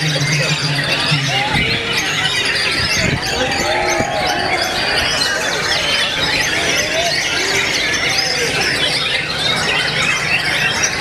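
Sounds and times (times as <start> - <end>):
many birds singing: 0.0 - 11.0.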